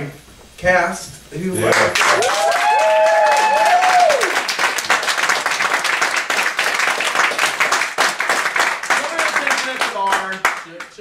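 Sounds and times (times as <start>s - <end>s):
audience applauding: 1.6s - 11.0s
person whooping: 2.1s - 4.4s.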